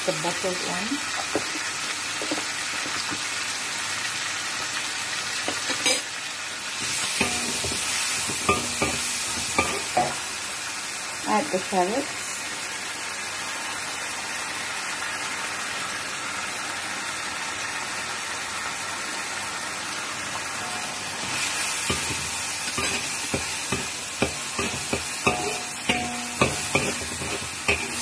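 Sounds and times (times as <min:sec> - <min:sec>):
food sizzling in a wok: 0:00.0 - 0:28.0
metal spatula scraping a wok: 0:06.8 - 0:10.1, 0:20.6 - 0:28.0.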